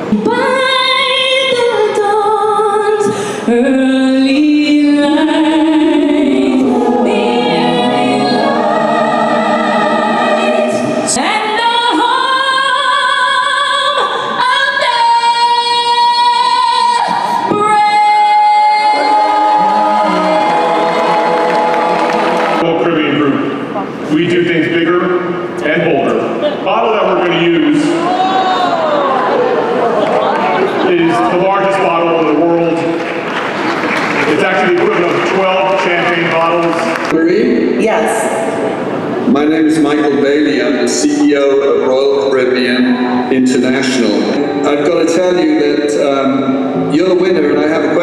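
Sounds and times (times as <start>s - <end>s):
mixed choir singing in harmony: 5.3s - 11.6s, 18.6s - 22.6s.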